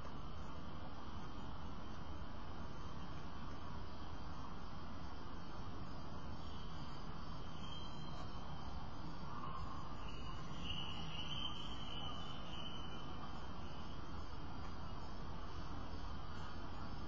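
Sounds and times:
low background hum: 0.0 - 17.0
insect trilling: 5.5 - 17.0.

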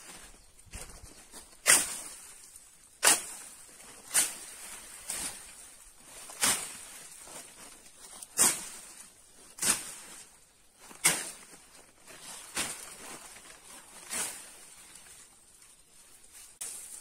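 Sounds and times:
axe chopping wood: 3.0 - 3.5.

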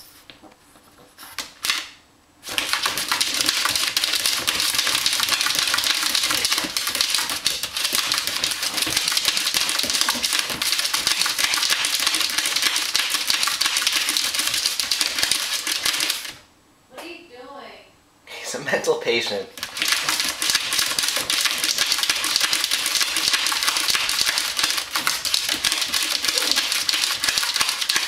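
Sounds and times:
puppy claws scratching plastic: 2.4 - 16.4, 19.6 - 28.0.

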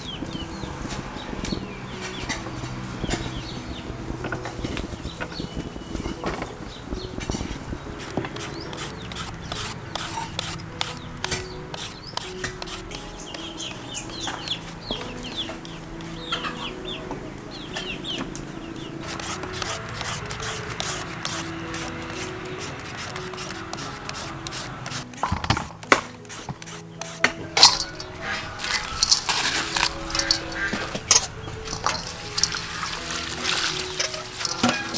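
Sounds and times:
peelers scraping fruit skin: 7.2 - 16.6, 17.8 - 34.9.

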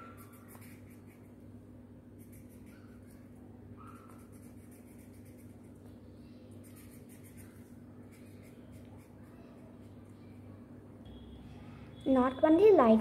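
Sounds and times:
felt-tip pen scratching on paper: 0.0 - 1.4, 4.0 - 5.8, 6.6 - 9.2
steady low hum: 0.0 - 13.0.

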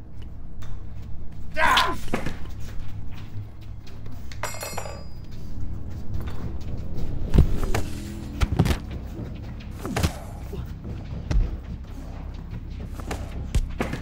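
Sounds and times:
low steady film score: 0.0 - 14.0
punches and body blows: 1.4 - 2.8, 7.2 - 9.0, 9.7 - 11.9, 12.8 - 14.0.

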